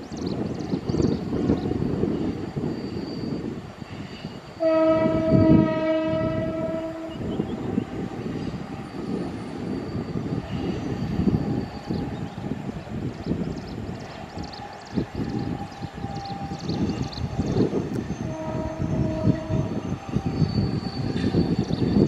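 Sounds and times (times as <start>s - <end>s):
train rumbling: 0.0s - 22.0s
train horn blast: 4.6s - 8.9s, 15.6s - 17.0s, 17.9s - 21.4s.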